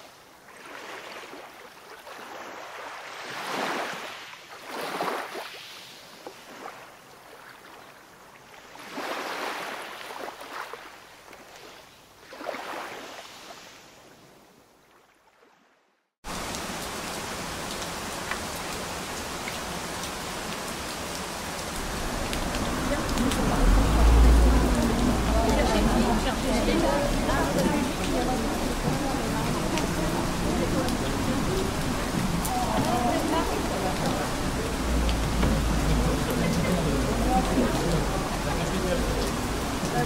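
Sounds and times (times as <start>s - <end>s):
ocean waves surging: 0.0s - 7.8s, 8.6s - 11.0s, 12.2s - 14.0s, 20.0s - 40.0s
steady rain: 16.2s - 40.0s.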